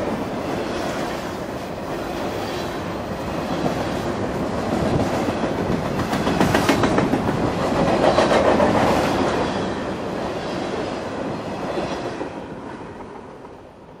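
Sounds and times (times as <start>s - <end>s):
train wheels clicking over rail joints: 3.5s - 9.6s.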